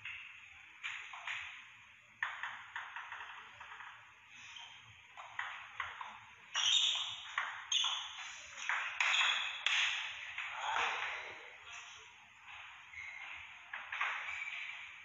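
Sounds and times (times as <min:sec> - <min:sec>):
table tennis ball hitting paddles: 0:00.0 - 0:01.6, 0:02.2 - 0:04.1, 0:05.1 - 0:11.1, 0:13.7 - 0:14.4
ball bouncing on table: 0:02.2 - 0:04.1, 0:05.2 - 0:11.1.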